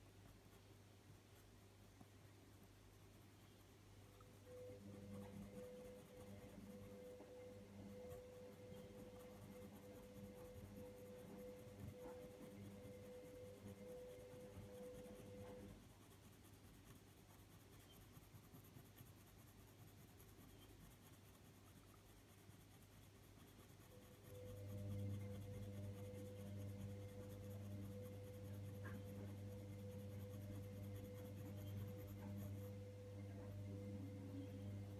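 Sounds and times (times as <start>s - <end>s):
pencil scratching on paper: 3.4s - 34.9s
low hum: 23.9s - 34.9s.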